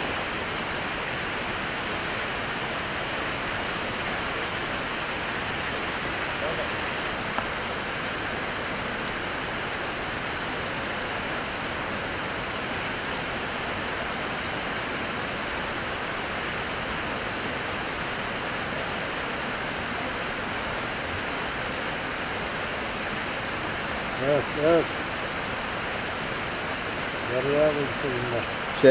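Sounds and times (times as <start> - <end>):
river water rushing: 0.0 - 28.9.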